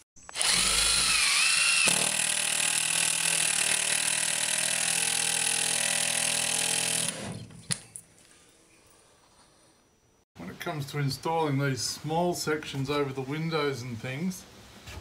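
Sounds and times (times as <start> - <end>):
cordless drill driving screw: 0.3 - 7.4.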